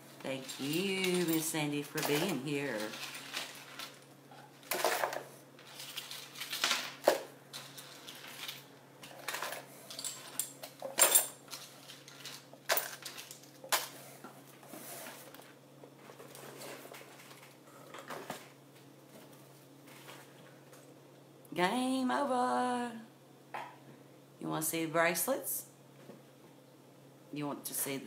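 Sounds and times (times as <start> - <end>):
metal jewelry clinking: 0.4 - 4.0, 9.3 - 13.6.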